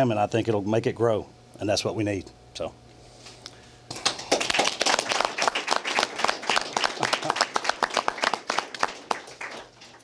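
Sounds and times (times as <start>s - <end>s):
people applauding: 3.9s - 10.0s.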